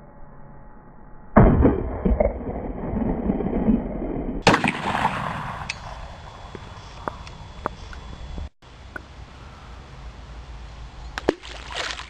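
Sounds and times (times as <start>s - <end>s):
gunshot: 1.4s - 2.3s, 4.4s - 6.1s.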